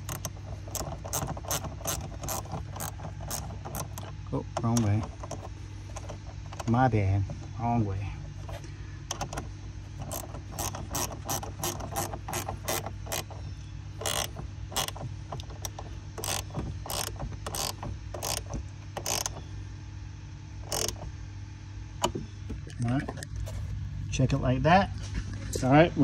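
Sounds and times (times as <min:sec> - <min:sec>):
ratcheting wrench clicking: 0:00.0 - 0:06.7, 0:10.0 - 0:13.4, 0:14.0 - 0:19.4, 0:20.7 - 0:21.0.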